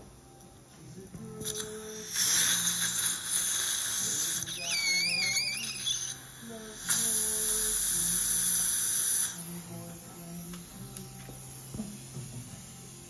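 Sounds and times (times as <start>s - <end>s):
suction tip hissing: 1.2s - 13.0s
suction slurping squeal: 3.8s - 6.2s.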